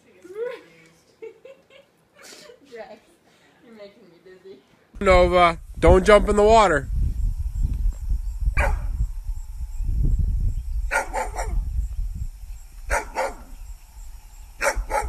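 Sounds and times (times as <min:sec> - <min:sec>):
steady low rumble: 0:05.0 - 0:15.0
dog barking: 0:08.6 - 0:08.9, 0:10.9 - 0:11.6, 0:12.9 - 0:13.6, 0:14.6 - 0:15.0.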